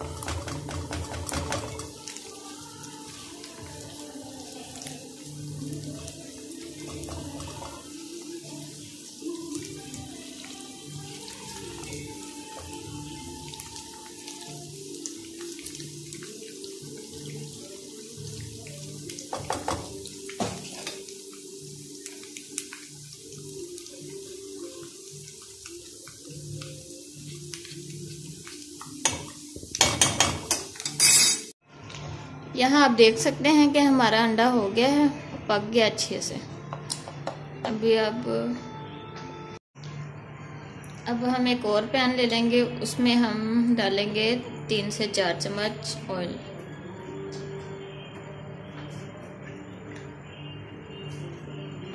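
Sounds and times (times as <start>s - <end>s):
spatula knocking pan: 0.0s - 1.9s, 29.0s - 30.7s
eggs sizzling in frying pan: 0.0s - 31.6s.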